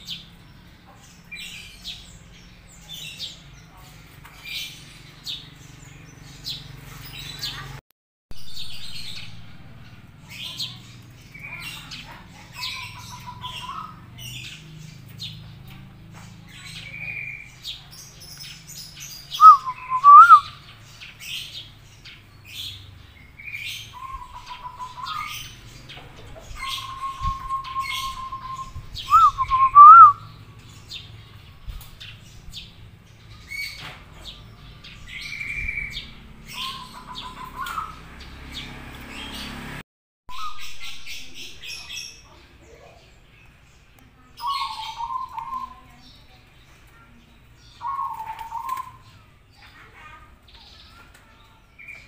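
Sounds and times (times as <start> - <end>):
small birds chirping: 0.0 - 52.0
dove cooing: 24.0 - 25.4, 26.1 - 30.3, 36.5 - 38.0.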